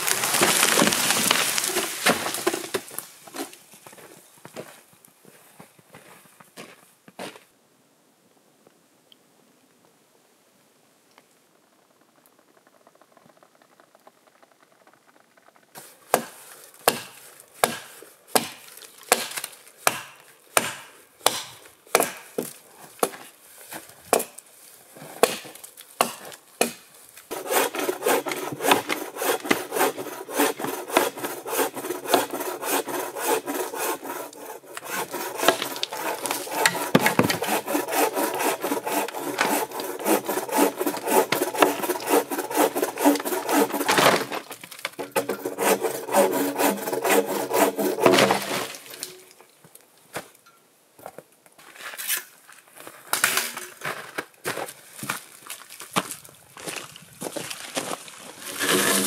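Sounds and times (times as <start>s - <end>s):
hand sawing through log: 15.8s - 22.2s, 26.0s - 49.2s, 58.4s - 59.0s
hand tool striking wood: 16.1s - 23.2s, 25.2s - 49.2s.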